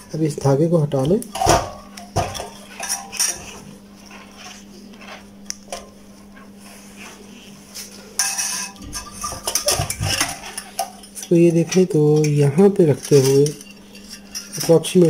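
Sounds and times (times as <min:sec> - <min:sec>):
heater parts clinking and scraping: 0:00.0 - 0:15.0
steady low hum: 0:00.0 - 0:15.0
metal parts clattering: 0:08.2 - 0:15.0.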